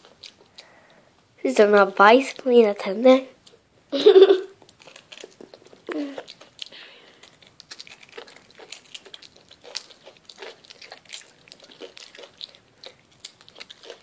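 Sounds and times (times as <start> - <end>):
child chewing chocolate: 0.0 - 1.2, 4.1 - 14.0.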